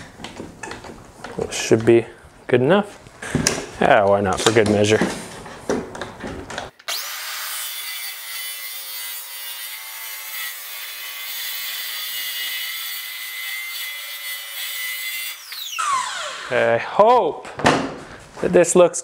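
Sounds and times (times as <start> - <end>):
circular saw cutting wood: 6.8 - 17.1.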